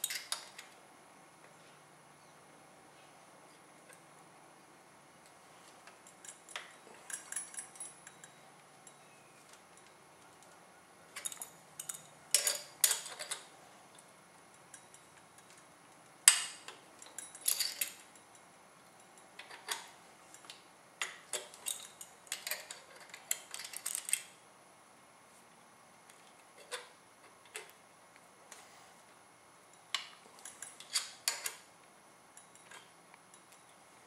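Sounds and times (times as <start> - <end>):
metal tools clinking on metal: 0.0 - 0.7, 5.8 - 10.3, 11.1 - 14.0, 14.6 - 15.6, 16.3 - 24.3, 29.7 - 31.6.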